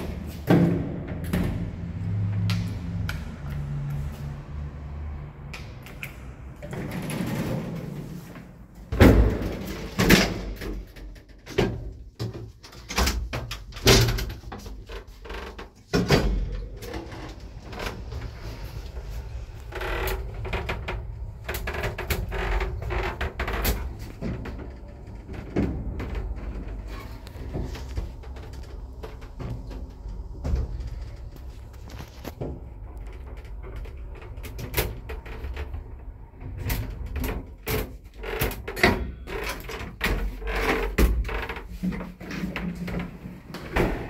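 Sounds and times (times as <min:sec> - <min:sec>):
lift doors banging and clicking: 0:00.0 - 0:03.4, 0:05.5 - 0:44.0
lift car humming: 0:16.8 - 0:37.1.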